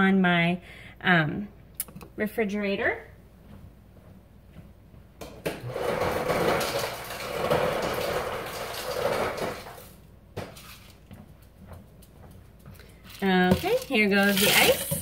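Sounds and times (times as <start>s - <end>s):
ice dispenser running: 5.4s - 10.0s, 13.1s - 15.0s
ice rattling into plastic cup: 5.9s - 9.9s, 13.1s - 15.0s.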